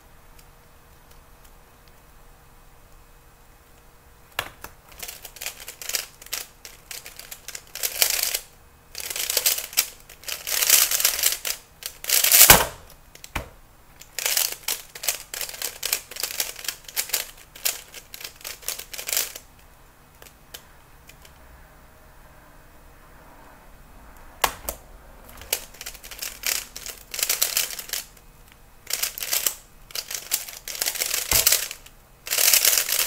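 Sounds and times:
puzzle cube clicking while turned: 0:04.6 - 0:13.3, 0:14.0 - 0:19.5, 0:25.3 - 0:33.0.

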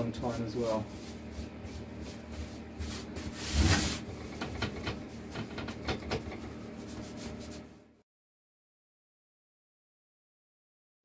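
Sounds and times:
applicator scrubbing wood: 0:00.0 - 0:07.7.

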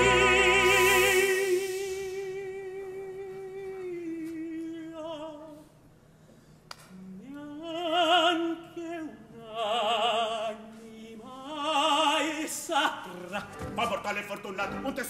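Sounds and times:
man singing opera: 0:00.0 - 0:05.6, 0:07.0 - 0:15.0.

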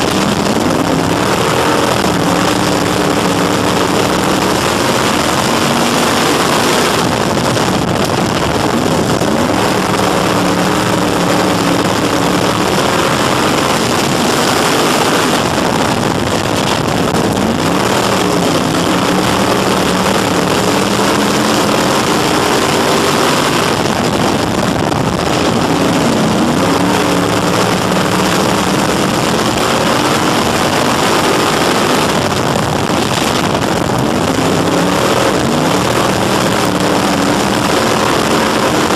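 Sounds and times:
race car engine at speed: 0:00.0 - 0:38.9.

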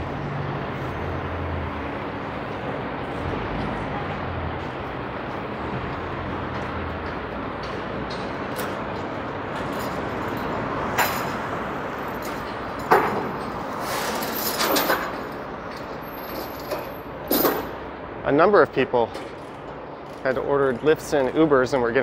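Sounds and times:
traffic: 0:00.0 - 0:22.0.

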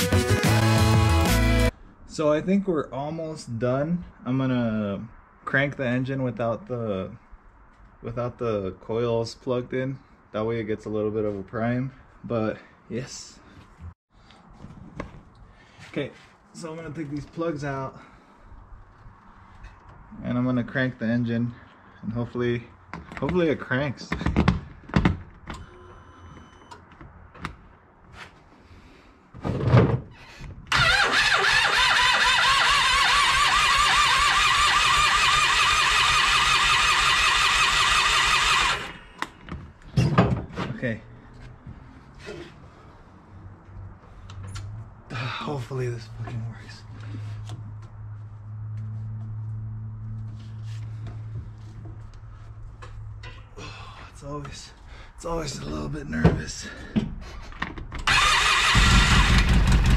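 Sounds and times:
engine cranking by starter: 0:30.7 - 0:39.4, 0:58.0 - 0:59.9.

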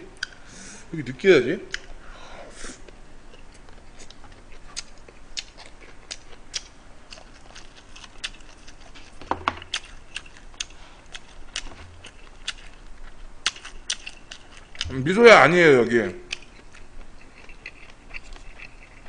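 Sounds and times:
chewing: 0:03.3 - 0:14.9, 0:16.3 - 0:19.0.

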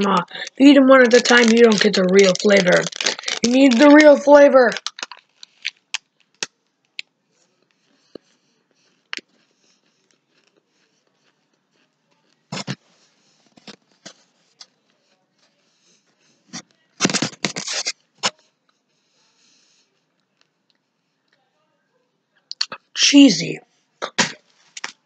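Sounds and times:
chewing crunchy insects: 0:07.5 - 0:13.4.

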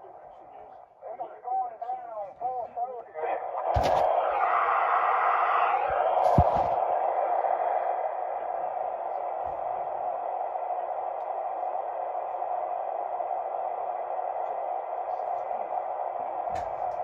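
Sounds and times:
radio static hiss: 0:00.1 - 0:07.1.

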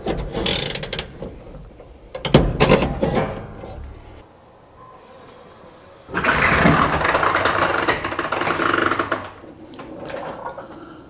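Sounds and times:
floor jack rattling on concrete: 0:06.2 - 0:09.4.

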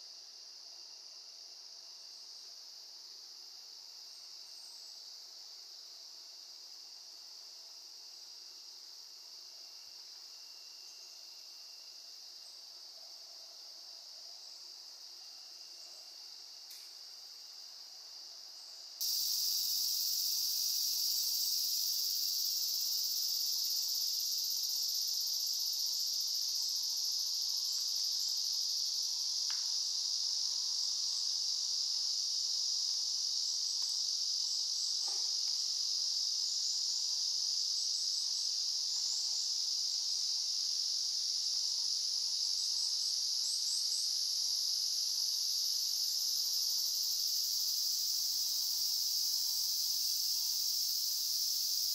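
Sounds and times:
insects singing: 0:19.0 - 0:51.9.

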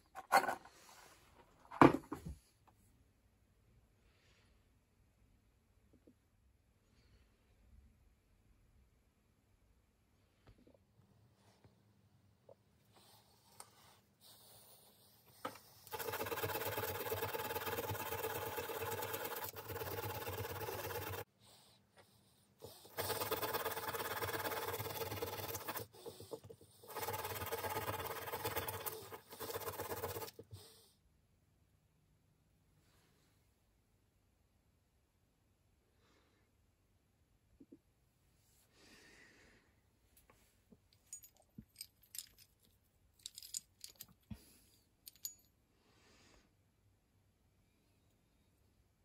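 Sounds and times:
wire brush scrubbing metal: 0:15.9 - 0:21.3, 0:22.8 - 0:30.4
metal parts clinking: 0:41.0 - 0:44.3.

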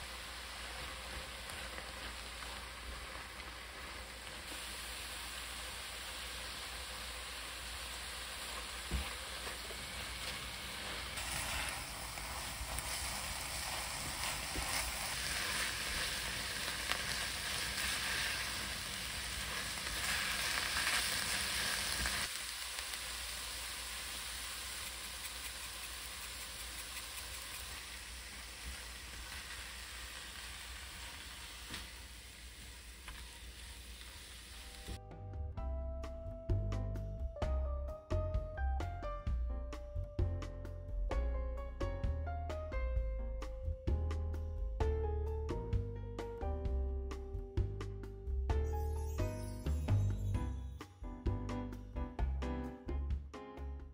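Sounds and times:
food sizzling in a pan: 0:00.0 - 0:35.0, 0:48.6 - 0:50.8.

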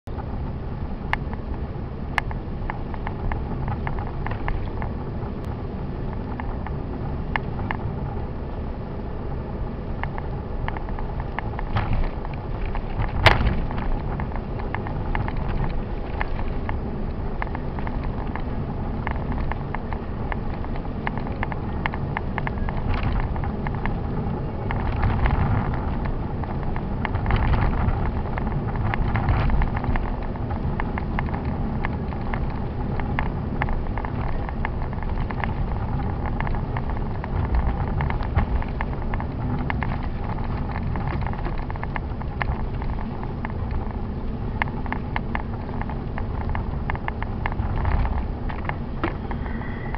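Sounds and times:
car engine and tyres rumbling: 0:00.0 - 0:49.9.

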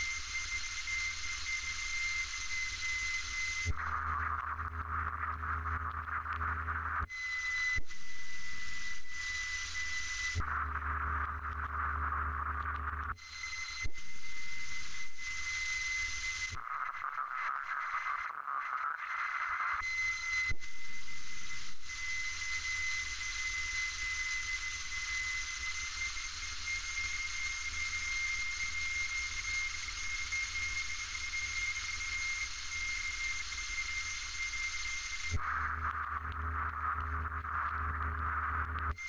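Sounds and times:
click: 0:34.8 - 0:39.0.

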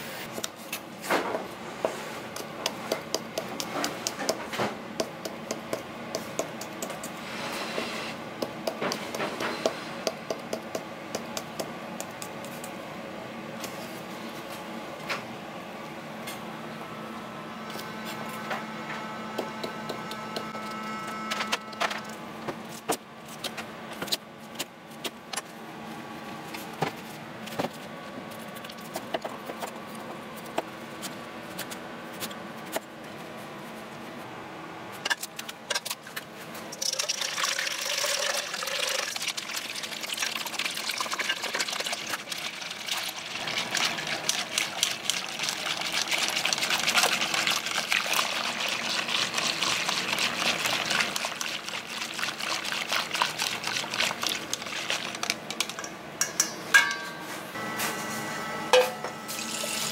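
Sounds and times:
whisk beating batter in metal bowl: 0:37.0 - 0:55.7.

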